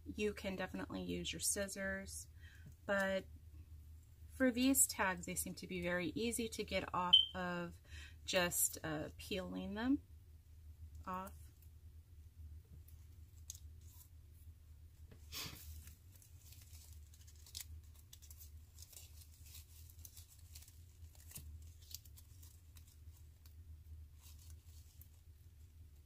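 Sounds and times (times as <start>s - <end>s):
low steady hum: 0.0s - 26.0s
paper tags tearing and crinkling: 15.4s - 23.5s, 24.2s - 25.2s.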